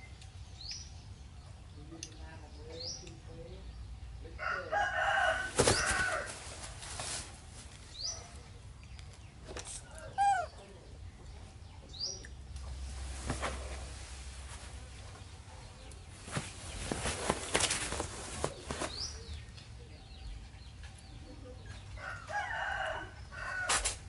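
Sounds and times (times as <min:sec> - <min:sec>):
rooster crowing: 0:04.4 - 0:06.4, 0:22.0 - 0:23.8.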